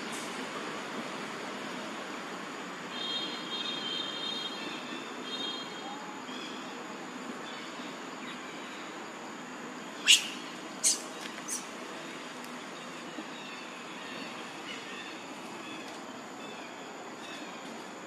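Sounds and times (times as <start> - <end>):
outdoor background hiss: 0.0 - 18.0
baby monkey squealing: 10.0 - 11.7.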